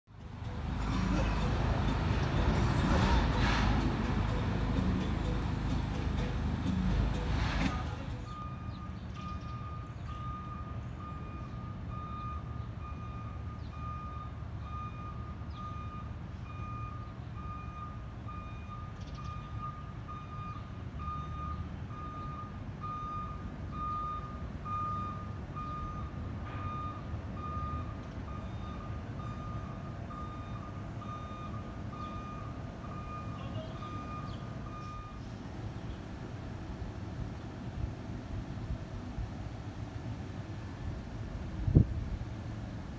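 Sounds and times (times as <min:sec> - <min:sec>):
low engine rumble: 0:00.1 - 0:42.9
backup alarm beeping: 0:08.3 - 0:35.2.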